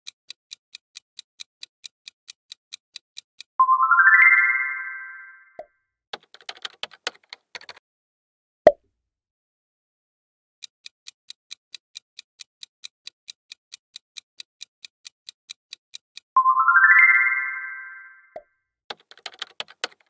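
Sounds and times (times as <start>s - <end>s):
timer ticking: 0.0s - 4.6s, 10.6s - 16.5s
small clicks: 6.2s - 7.8s, 18.3s - 20.0s.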